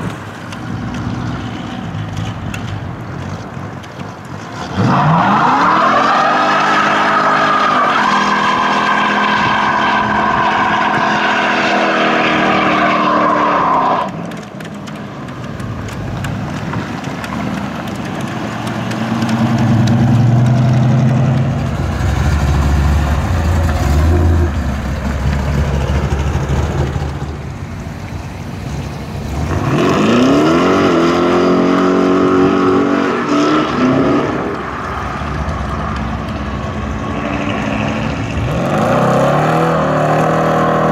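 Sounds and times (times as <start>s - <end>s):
car engine at high revs: 0.0s - 40.9s
deep engine rumble: 15.2s - 30.0s
engine revving up: 29.3s - 35.7s, 36.9s - 40.9s.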